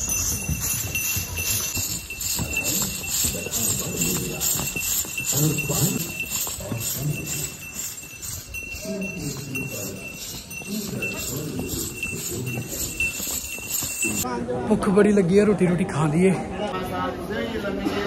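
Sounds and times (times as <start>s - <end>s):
harness bells jingling: 0.0s - 14.3s
voices talking: 0.0s - 18.0s.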